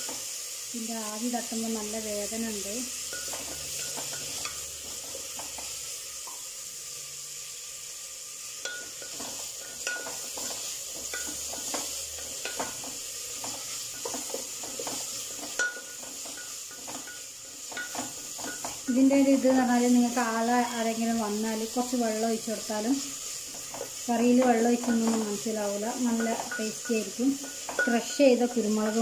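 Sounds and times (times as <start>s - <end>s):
onions sizzling in hot oil: 0.0s - 29.0s
spatula scraping and knocking pot: 3.1s - 5.7s, 8.6s - 19.0s, 23.4s - 29.0s.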